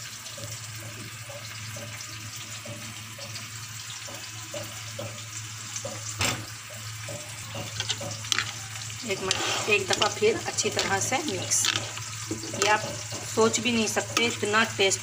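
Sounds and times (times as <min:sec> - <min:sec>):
onions sizzling in oil: 0:00.0 - 0:15.0
spoon mixing on a plate: 0:07.1 - 0:15.0.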